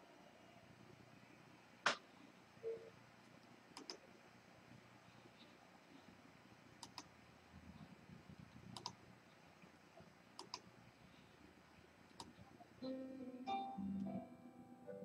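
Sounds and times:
faint mouse clicks: 1.8 - 4.0, 6.8 - 7.1, 8.5 - 9.0, 9.6 - 10.7, 12.1 - 12.6
music: 12.8 - 15.0.

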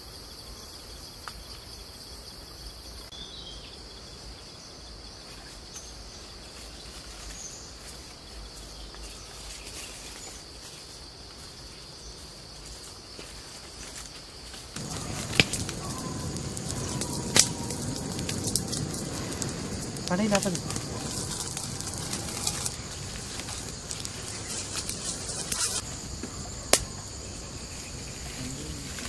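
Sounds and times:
insect drone: 0.0 - 29.0
wood fire crackling: 14.7 - 29.0
loud fire pops: 14.8 - 29.0.

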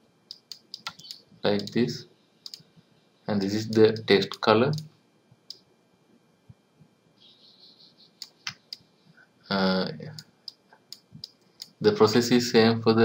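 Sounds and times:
computer mouse clicks: 0.3 - 1.8, 2.4 - 2.7, 8.2 - 8.9, 10.1 - 11.8.

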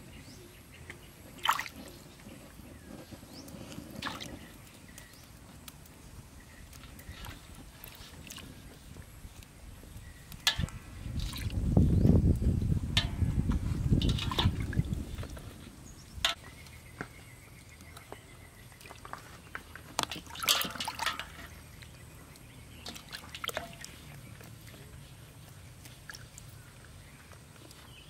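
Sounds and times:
water sloshing in metal basin: 0.9 - 2.0, 3.3 - 5.1, 6.7 - 9.4, 10.1 - 11.6, 12.9 - 16.6, 18.7 - 27.0
water splashing: 1.3 - 1.9, 3.9 - 4.5, 13.8 - 15.5, 20.0 - 22.0, 22.7 - 27.0.

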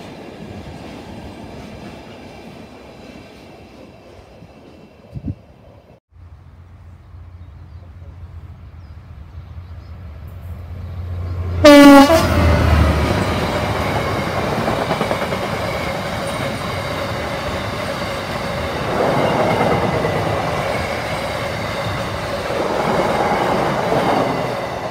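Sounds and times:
train wheels on rails: 0.0 - 6.0, 9.9 - 24.9
diesel locomotive engine: 0.0 - 24.9
loud train horn blast: 11.6 - 13.0.

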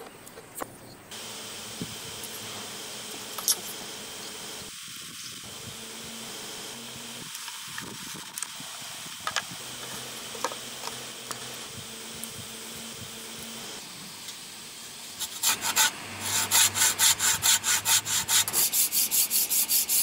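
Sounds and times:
insects hissing: 0.7 - 20.0
wooden pieces and tools clicking: 7.3 - 11.6.

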